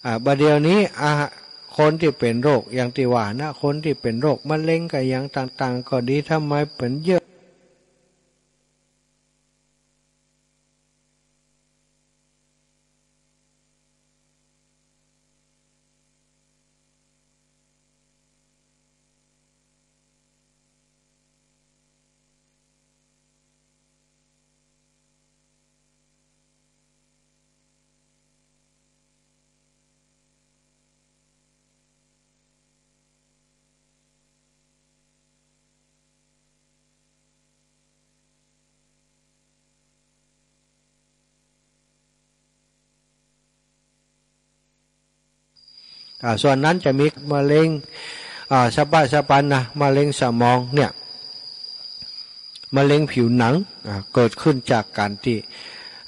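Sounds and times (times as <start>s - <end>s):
light hiss: 0.0s - 10.8s, 45.5s - 56.0s
faint electrical hum with hiss: 0.0s - 56.0s.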